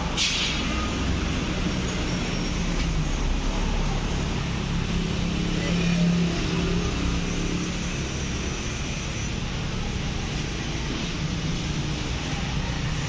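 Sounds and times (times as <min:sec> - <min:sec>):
low workshop hum: 0:00.0 - 0:13.0
air ratchet hissing: 0:07.2 - 0:13.0.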